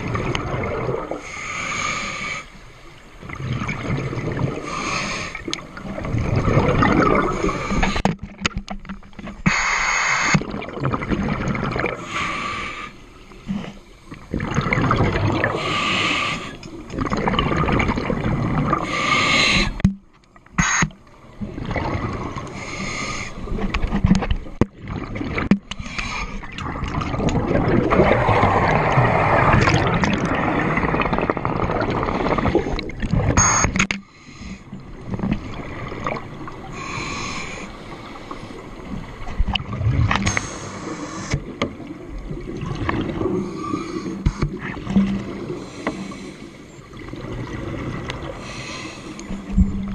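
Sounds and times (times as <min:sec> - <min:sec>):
bubbling exhalations: 0:06.0 - 0:07.9, 0:14.3 - 0:15.8, 0:16.9 - 0:19.0, 0:26.5 - 0:33.2
regulator hissing inhalations: 0:15.6 - 0:16.6, 0:18.8 - 0:19.8, 0:22.6 - 0:23.4, 0:48.4 - 0:49.3.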